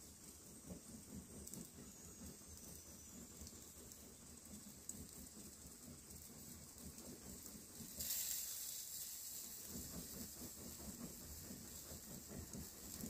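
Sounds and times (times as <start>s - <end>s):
food sizzling in a hot pan: 7.9s - 9.6s.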